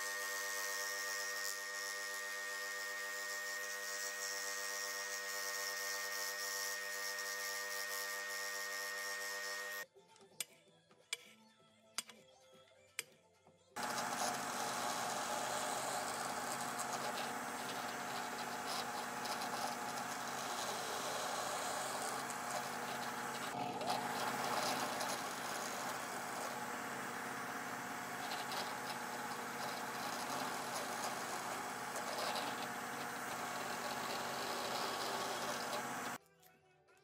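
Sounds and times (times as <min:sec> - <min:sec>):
drill press boring wood: 0:00.0 - 0:09.8, 0:13.8 - 0:36.2.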